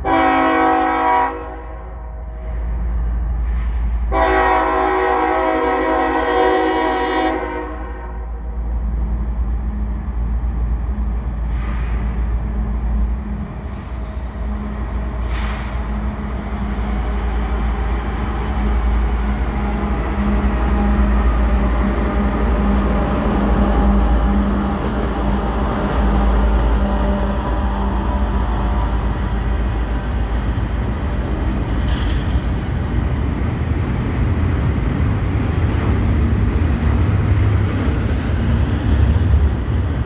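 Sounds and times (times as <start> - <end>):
locomotive air horn chord: 0.0 - 1.8, 4.1 - 8.3
locomotive engine rumble: 8.3 - 40.0.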